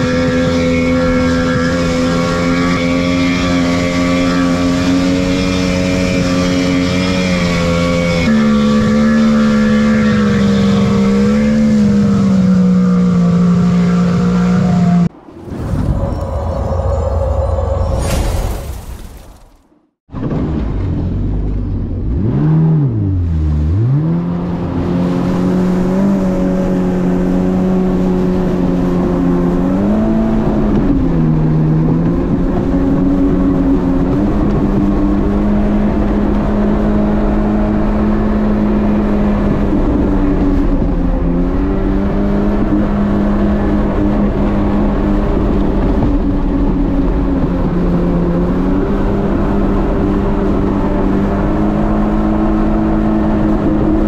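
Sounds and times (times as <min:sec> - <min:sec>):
jet ski engine running: 0:00.0 - 0:15.2, 0:21.2 - 0:54.0
rush of wind and water: 0:22.2 - 0:54.0.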